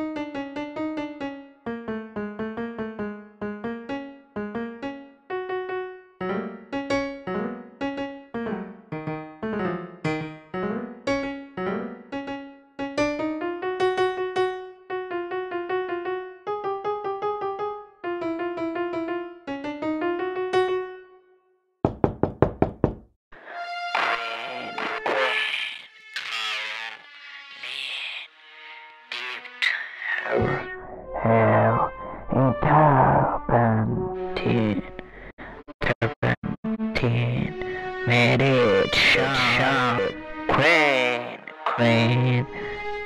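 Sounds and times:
keyboard melody: 0.0 - 21.6
sharp knocks: 21.9 - 23.0.

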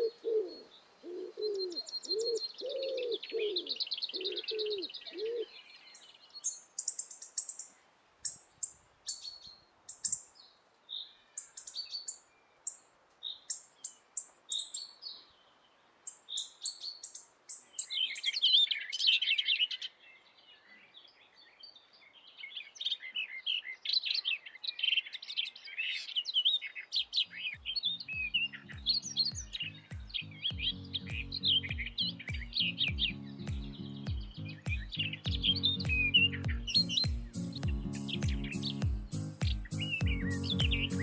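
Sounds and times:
small songbirds chirping: 0.0 - 41.0
music with low even beat: 28.2 - 41.0.

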